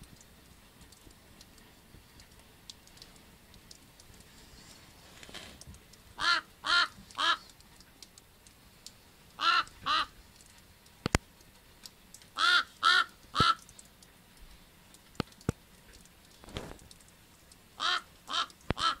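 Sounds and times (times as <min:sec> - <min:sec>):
raven croaking: 0:06.2 - 0:07.5, 0:09.4 - 0:10.2, 0:12.4 - 0:13.7, 0:17.8 - 0:19.0
sharp clicks: 0:14.9 - 0:17.2.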